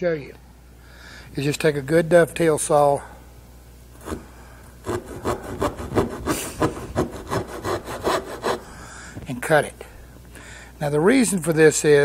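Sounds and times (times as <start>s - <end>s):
hand saw cutting wood: 4.0s - 4.2s, 4.8s - 8.7s.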